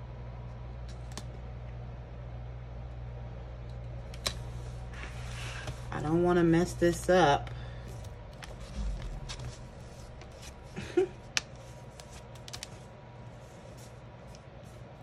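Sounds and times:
paper rustling: 8.3 - 14.8.

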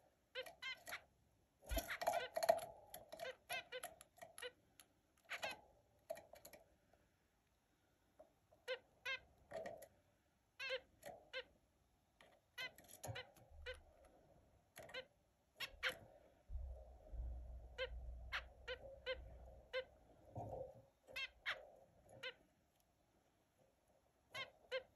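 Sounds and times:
finches calling: 17.7 - 19.9.

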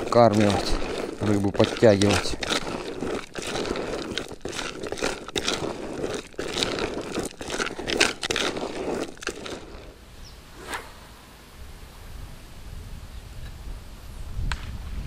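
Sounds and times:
crunchy rustling of bait mix: 0.0 - 10.0.

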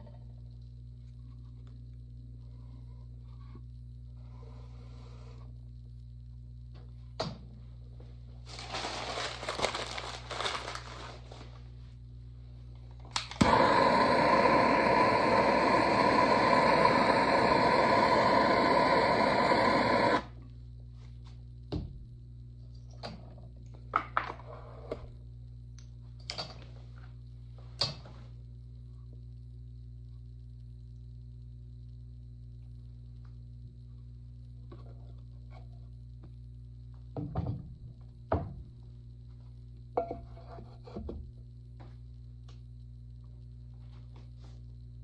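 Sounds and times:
potter's wheel motor hum: 12.7 - 20.5
gas torch lighting click: 13.1 - 20.3
gas torch hissing: 13.2 - 20.4.

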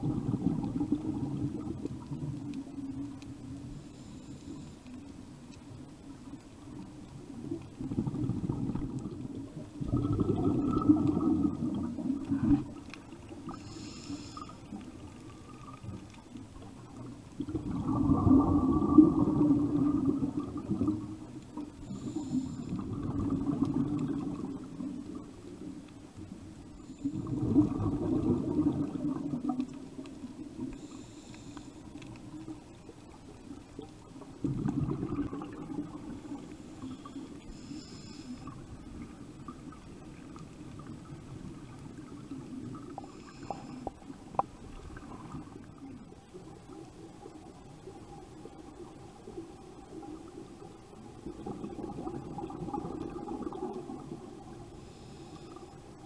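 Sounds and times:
diver exhaling bubbles underwater: 0.0 - 2.4, 7.8 - 12.8, 17.4 - 25.4, 27.0 - 29.8, 34.4 - 36.9, 51.1 - 54.6
faint hissing inhalations: 3.7 - 5.2, 13.4 - 14.9, 21.8 - 23.0, 30.7 - 32.2, 36.5 - 38.8, 42.9 - 44.3, 54.7 - 56.0.

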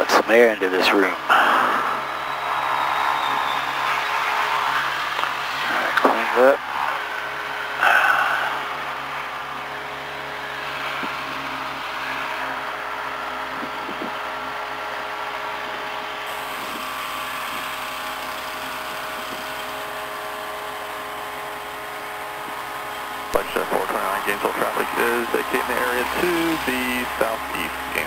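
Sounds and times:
light aircraft engine idling: 5.1 - 28.0.

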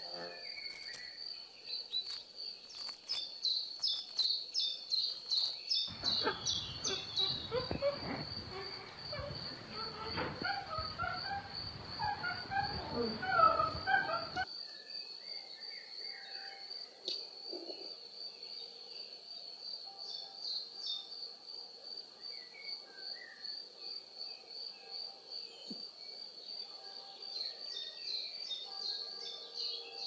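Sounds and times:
insect pulsing trill: 0.0 - 1.3, 1.9 - 14.5
background noise: 0.0 - 30.0
sliding bird calls: 5.2 - 14.4.

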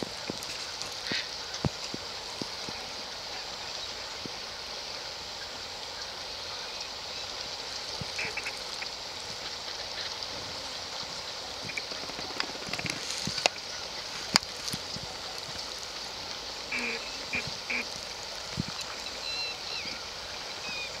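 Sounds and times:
steady high hiss: 0.0 - 21.0
duck calls: 8.2 - 8.8, 16.7 - 18.0.

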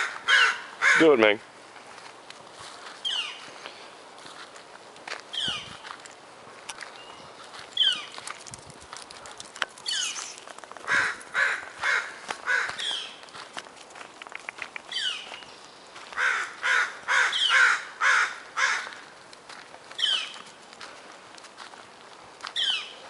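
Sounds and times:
jay harsh calls: 0.0 - 1.2, 10.9 - 13.1, 16.2 - 18.9.

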